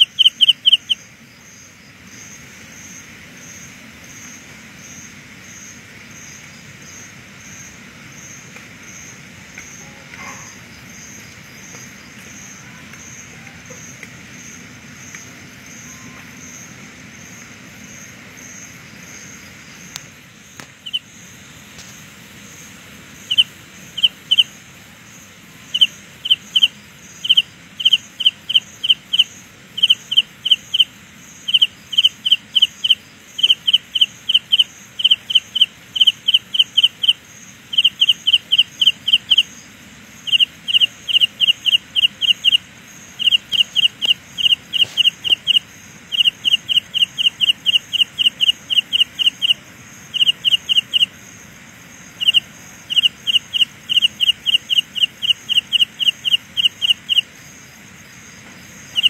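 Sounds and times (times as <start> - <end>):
cricket chirping: 0.0 - 59.0.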